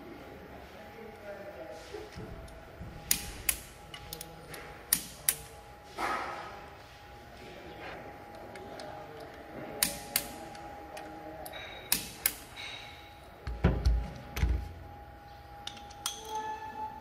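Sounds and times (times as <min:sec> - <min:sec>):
tools thudding on wooden bench: 0:13.5 - 0:14.6.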